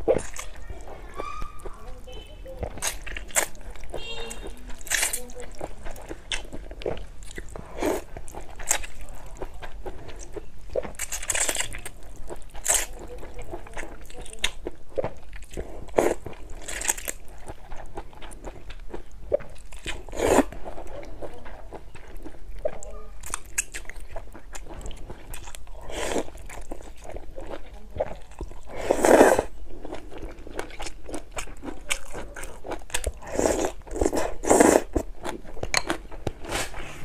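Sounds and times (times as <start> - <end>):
person chewing: 0.0 - 37.0
person slurping noodles: 6.3 - 8.8, 20.0 - 20.5, 25.7 - 26.4, 28.6 - 30.3, 33.2 - 35.0, 36.4 - 37.0.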